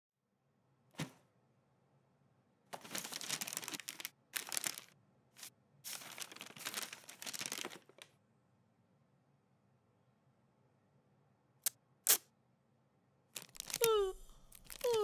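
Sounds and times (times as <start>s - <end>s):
wrapping paper crinkling: 2.8s - 8.1s, 13.4s - 15.0s.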